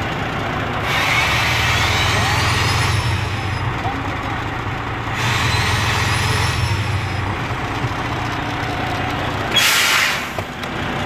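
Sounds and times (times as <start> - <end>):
diesel truck engine under load: 0.0 - 11.0
air brakes hissing: 9.5 - 10.5.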